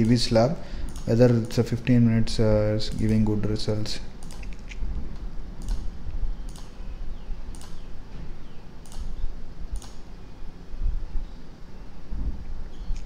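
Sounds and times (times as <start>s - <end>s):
low steady hum: 0.0s - 13.0s
computer mouse clicks: 0.9s - 1.2s, 4.2s - 4.8s, 5.6s - 6.8s, 7.5s - 7.9s, 8.8s - 10.0s.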